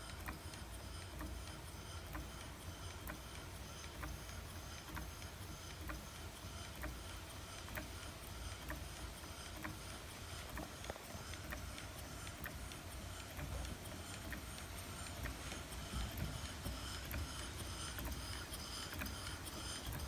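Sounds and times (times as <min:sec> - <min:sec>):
light mechanical clicks: 0:00.0 - 0:20.0
model steam engine running: 0:00.0 - 0:20.0.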